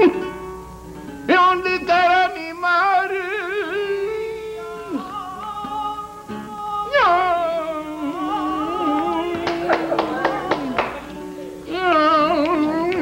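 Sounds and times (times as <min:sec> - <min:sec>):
man singing long wavering notes: 0:01.3 - 0:11.0.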